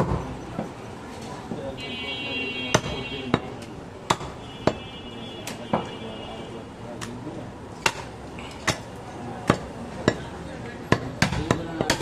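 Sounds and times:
knife chopping on wooden block: 0:07.8 - 0:08.1, 0:10.9 - 0:12.0.

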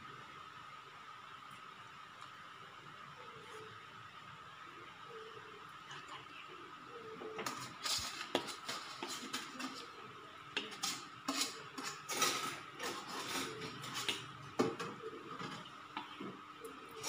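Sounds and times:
metal spoon scraping steel pan: 0:10.7 - 0:14.1.

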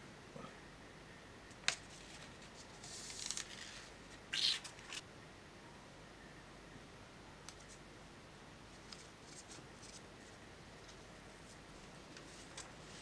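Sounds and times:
soft rustles of leaf and paper: 0:01.6 - 0:05.1, 0:08.7 - 0:13.0.

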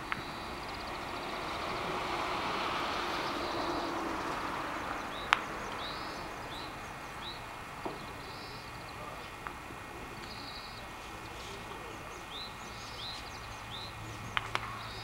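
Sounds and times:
vehicle passing: 0:00.0 - 0:10.0
small birds chirping: 0:00.0 - 0:15.0.

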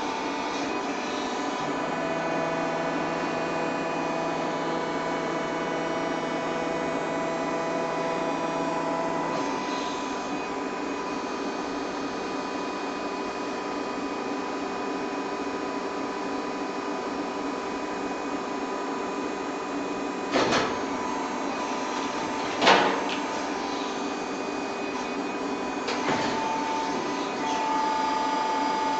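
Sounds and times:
hydraulic pump humming: 0:00.0 - 0:12.4, 0:19.9 - 0:28.9.

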